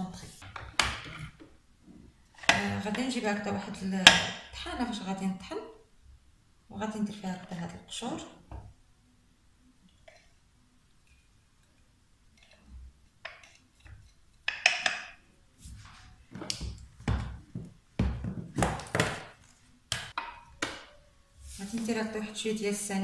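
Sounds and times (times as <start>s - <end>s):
kitchen containers knocking: 14.4s - 15.2s, 16.4s - 21.0s.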